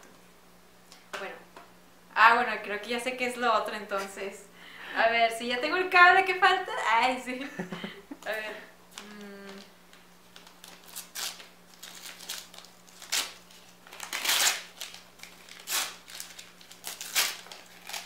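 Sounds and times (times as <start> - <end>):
wrapping paper crinkling and tearing: 9.6 - 18.0.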